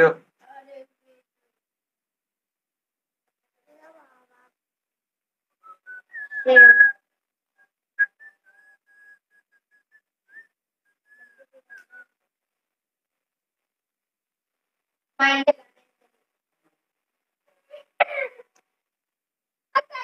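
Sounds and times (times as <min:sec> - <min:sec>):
person whistling a tune: 0:05.6 - 0:07.0, 0:08.0 - 0:12.1.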